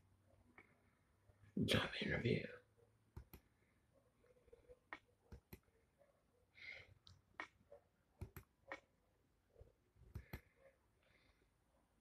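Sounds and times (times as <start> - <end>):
soft breath: 6.5 - 7.0.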